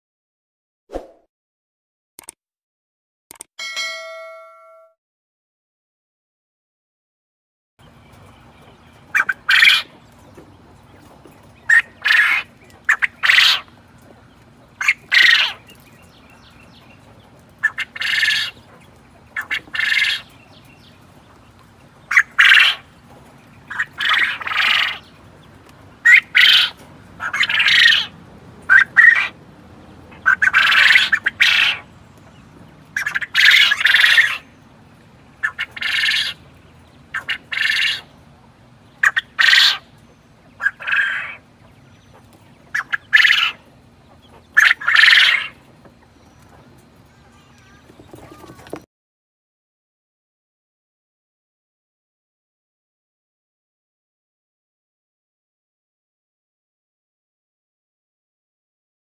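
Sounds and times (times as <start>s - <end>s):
quail calling: 9.1s - 10.0s, 11.6s - 13.8s, 14.8s - 15.8s, 17.6s - 20.3s, 22.1s - 22.9s, 23.6s - 25.1s, 26.0s - 29.4s, 30.1s - 31.9s, 32.9s - 34.5s, 35.4s - 36.4s, 37.1s - 38.1s, 39.0s - 46.1s.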